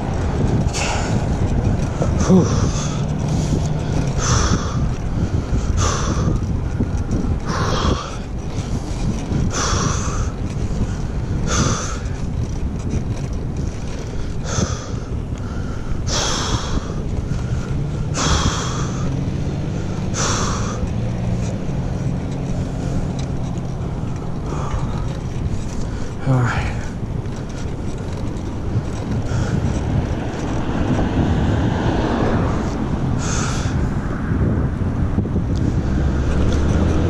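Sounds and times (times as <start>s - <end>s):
vehicle engine hum: 0.0s - 37.0s
wind on microphone: 0.0s - 37.0s
heavy breathing: 2.0s - 6.4s, 7.4s - 12.2s, 14.0s - 19.1s, 19.7s - 20.9s, 24.4s - 27.9s, 32.6s - 33.8s.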